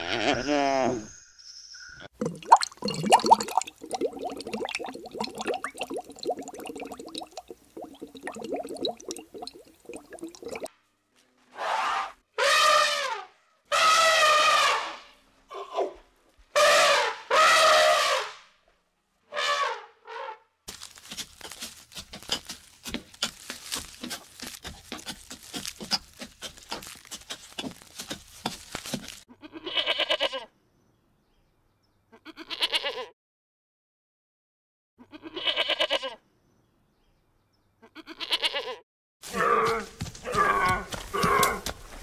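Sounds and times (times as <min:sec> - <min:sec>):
rustling: 0:20.7 - 0:29.3.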